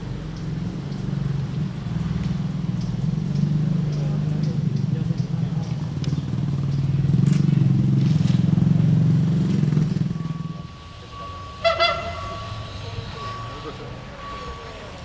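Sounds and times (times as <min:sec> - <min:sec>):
vehicle engine pulsing: 0:00.0 - 0:15.0
horn blast: 0:10.2 - 0:14.5.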